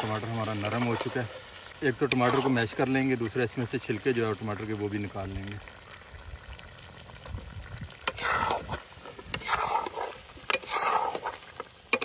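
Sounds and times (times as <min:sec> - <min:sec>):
spoon scraping metal pan: 0:00.0 - 0:01.4, 0:02.0 - 0:02.9, 0:08.0 - 0:12.0.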